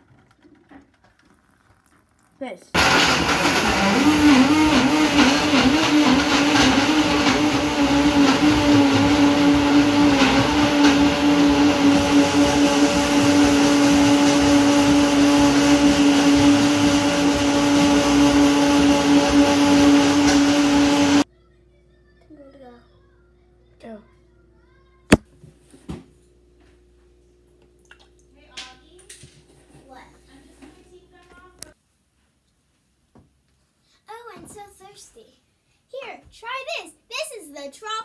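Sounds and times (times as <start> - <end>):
blender motor running: 2.8 - 21.3.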